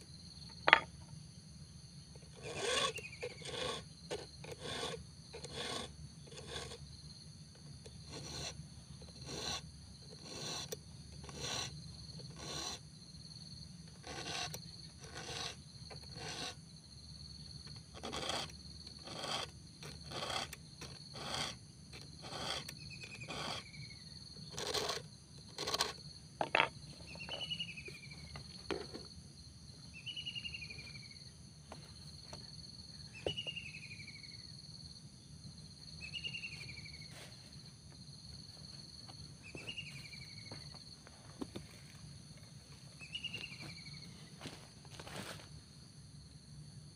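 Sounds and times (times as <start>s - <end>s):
high insect drone: 0.0s - 46.9s
file rasping on chainsaw chain: 2.2s - 6.8s, 7.8s - 12.8s, 13.9s - 16.6s, 17.7s - 23.8s, 24.4s - 26.7s.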